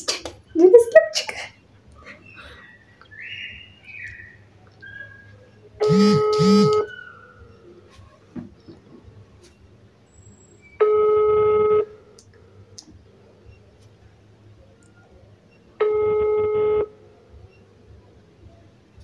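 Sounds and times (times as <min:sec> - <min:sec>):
phone ringback tone: 0:05.8 - 0:06.9, 0:10.8 - 0:11.9, 0:15.8 - 0:16.9.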